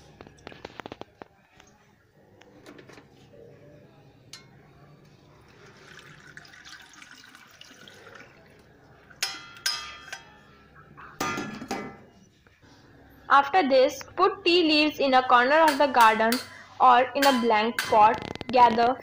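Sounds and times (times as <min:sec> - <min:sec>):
water pouring into metal sink: 0:05.4 - 0:09.4
metal pan clanks: 0:09.2 - 0:10.4, 0:11.2 - 0:12.0, 0:15.6 - 0:18.5.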